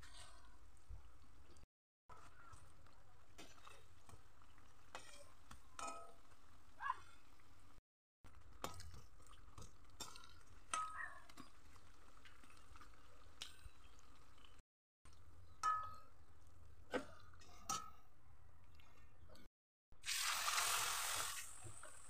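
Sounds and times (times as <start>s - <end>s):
metal spoon clinking on pan: 4.9s - 6.3s, 15.6s - 16.1s.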